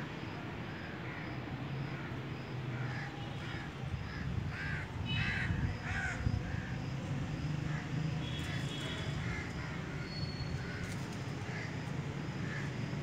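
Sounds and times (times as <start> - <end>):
bird cawing: 2.8 - 6.3.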